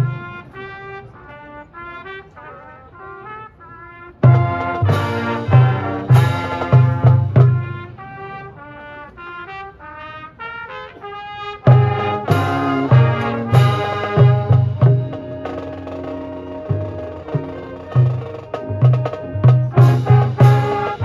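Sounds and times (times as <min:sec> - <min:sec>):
brass band playing: 0:00.0 - 0:21.0.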